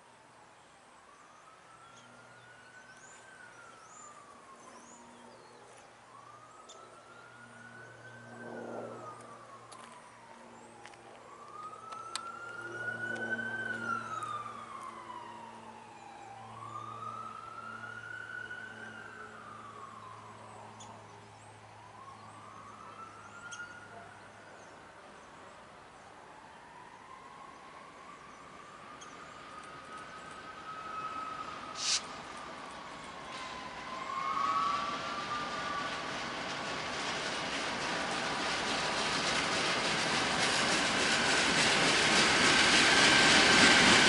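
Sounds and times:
siren wailing: 1.0s - 24.3s, 26.3s - 37.0s.

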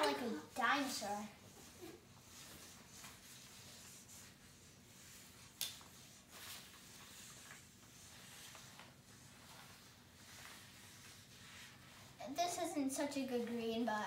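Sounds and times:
markers scratching on paper: 0.0s - 13.8s.

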